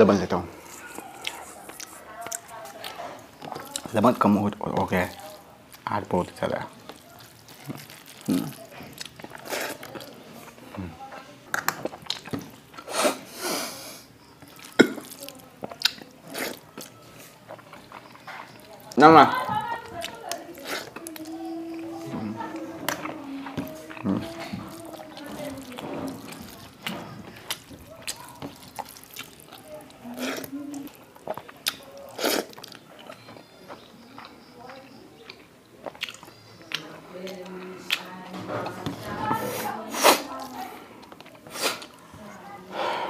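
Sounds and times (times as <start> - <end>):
wet mouth smacks and chewing: 0.7 - 3.9, 6.8 - 10.1, 11.5 - 12.9, 14.4 - 18.6, 24.7 - 29.7, 30.3 - 38.1
fingers squelching rice and curry: 4.7 - 10.6, 14.2 - 19.0, 19.7 - 38.1
wet eating smack: 24.6 - 29.6
breathy noise: 39.4 - 43.0.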